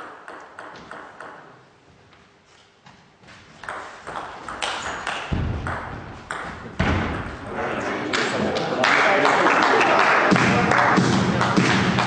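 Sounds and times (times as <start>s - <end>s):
heavy low thuds: 5.3s - 7.5s.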